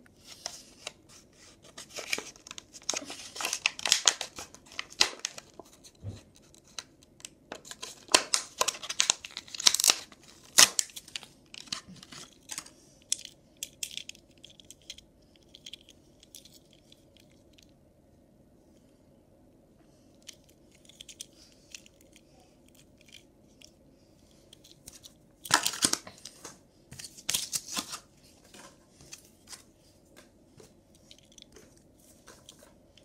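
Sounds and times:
blister packaging tearing and crinkling: 1.9 - 5.6, 7.6 - 13.2, 24.8 - 26.2.

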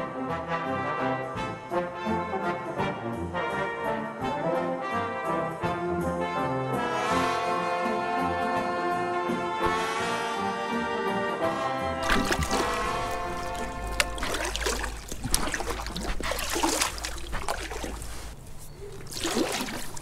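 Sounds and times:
outdoor noise: 12.0 - 20.0.

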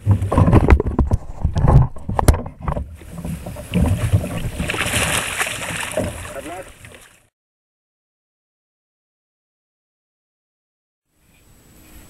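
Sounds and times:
net handle knocking against kayak: 0.0 - 6.4
water rushing: 3.0 - 7.3.

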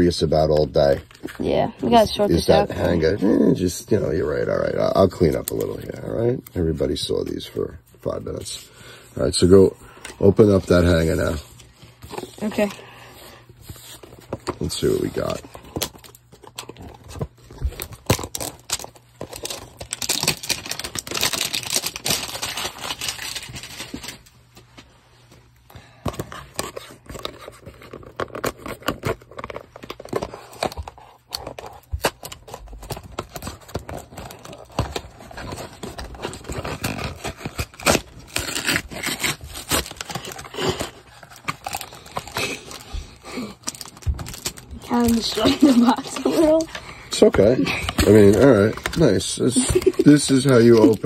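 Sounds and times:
cardboard box tearing: 14.2 - 24.1, 26.4 - 51.0.

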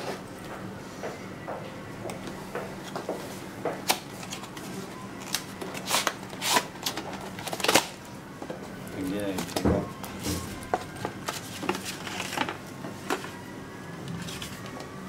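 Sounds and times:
packaging clicks scrapes and rustles: 3.8 - 8.0, 10.7 - 13.4, 14.1 - 14.9.

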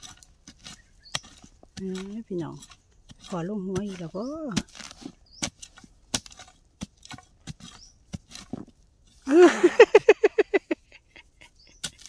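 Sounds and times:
spade chopping into soil: 0.0 - 8.8, 11.8 - 12.0.

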